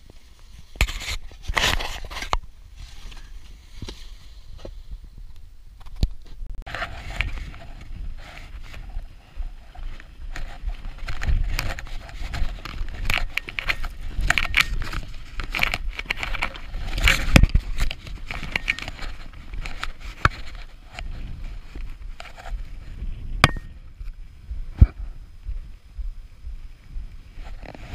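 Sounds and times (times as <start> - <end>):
footsteps crunching in snow: 6.7 - 27.9
low thumps on microphone: 16.6 - 27.9.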